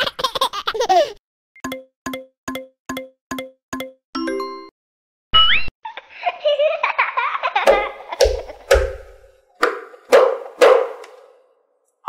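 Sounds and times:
sharp hits: 0:07.7 - 0:11.2.

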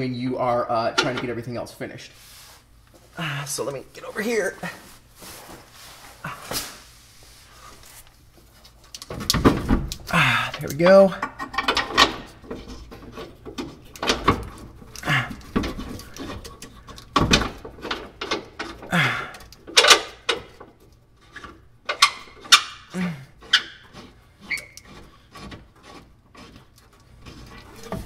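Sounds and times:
person grunting: 0:10.1 - 0:10.6, 0:15.0 - 0:15.4, 0:18.9 - 0:19.4, 0:22.9 - 0:23.3
thin squeak: 0:23.5 - 0:25.3.

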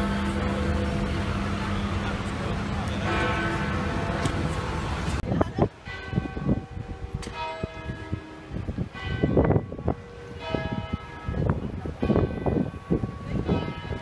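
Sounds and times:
church bells pealing: 0:00.0 - 0:14.0.

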